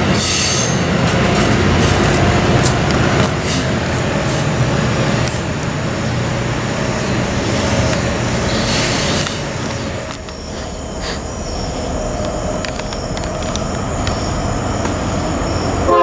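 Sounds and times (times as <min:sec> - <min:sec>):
train rumbling on rails: 0:00.0 - 0:16.0
sharp rail clicks: 0:07.4 - 0:15.2.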